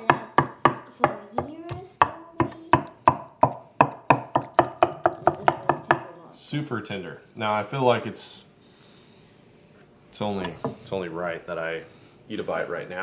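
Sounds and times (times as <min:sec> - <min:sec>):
knife chopping on wooden board: 0:00.0 - 0:06.1, 0:10.4 - 0:10.8.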